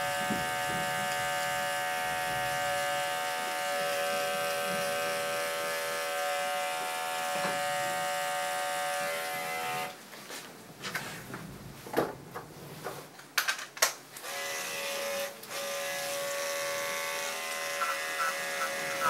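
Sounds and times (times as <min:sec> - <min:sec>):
electric clipper humming: 0:02.5 - 0:09.7, 0:14.2 - 0:19.0.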